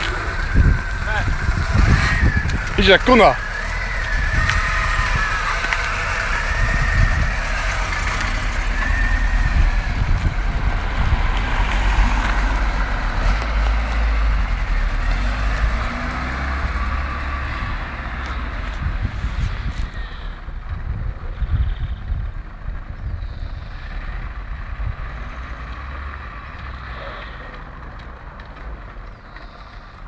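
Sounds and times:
car engine rumble: 0.0 - 30.0
tyre noise on brick paving: 0.0 - 30.0.

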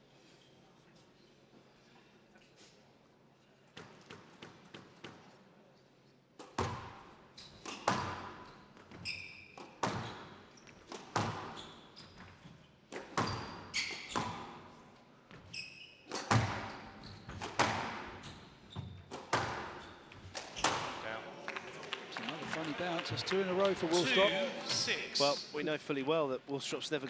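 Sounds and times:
shoes squeaking on court: 6.4 - 21.1
squash ball hits echoing: 7.6 - 8.4, 10.9 - 11.6, 16.1 - 18.2, 19.1 - 21.0.

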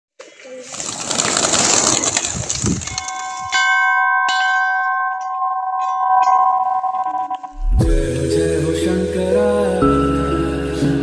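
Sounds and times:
pigeons wings flapping: 0.4 - 3.2
temple bell ringing: 3.0 - 7.6.

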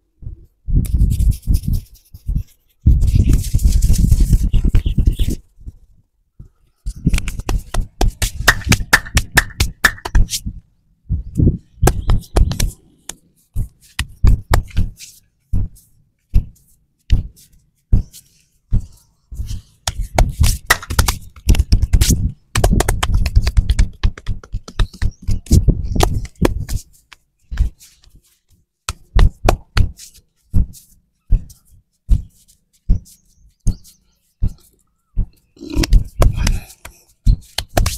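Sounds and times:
hands slapping on back: 7.0 - 10.4, 14.0 - 15.0, 19.8 - 28.2, 28.8 - 30.1, 35.8 - 37.9.

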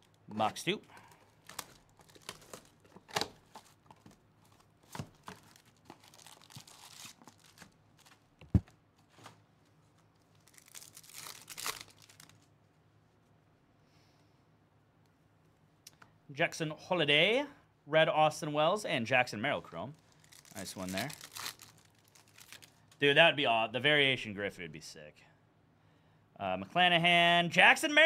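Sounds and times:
packaging tearing and crinkling: 1.4 - 8.3, 10.2 - 12.5, 20.0 - 22.8.

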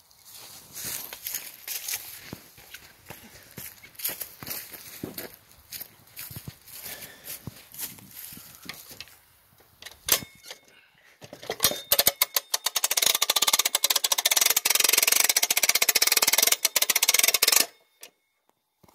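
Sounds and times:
hand-crank winch ratcheting: 9.8 - 18.2.

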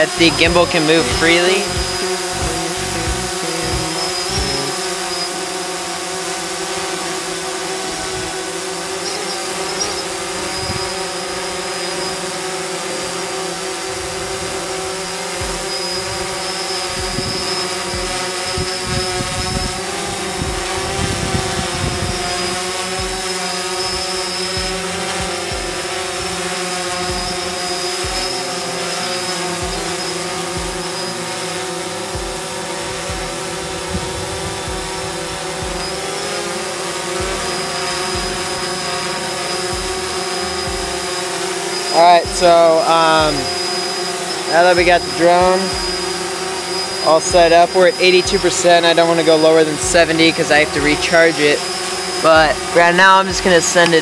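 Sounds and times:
drone propellers buzzing: 0.0 - 54.0
low thumps: 0.1 - 4.8, 17.0 - 22.4, 32.2 - 32.4, 33.0 - 36.0, 39.7 - 41.0.

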